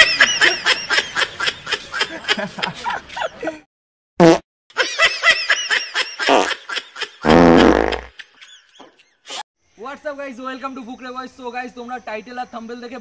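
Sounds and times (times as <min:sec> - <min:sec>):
people giggling: 0:00.0 - 0:03.7, 0:04.8 - 0:07.2, 0:07.8 - 0:09.4.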